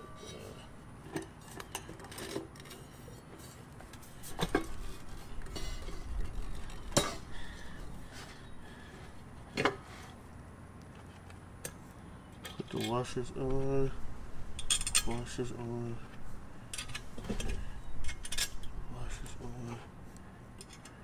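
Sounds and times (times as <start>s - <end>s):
metal hardware clinking: 14.6s - 15.4s.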